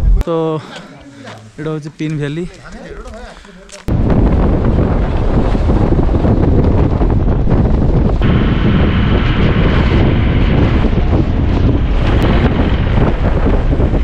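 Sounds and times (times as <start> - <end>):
wind buffeting microphone: 3.9 - 14.0.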